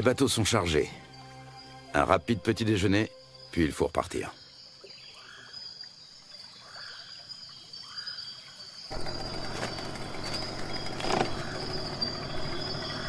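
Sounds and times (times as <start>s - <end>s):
insects chorus: 0.0s - 13.0s
insect chirps rising: 0.1s - 13.0s
boat motor running: 8.9s - 13.0s.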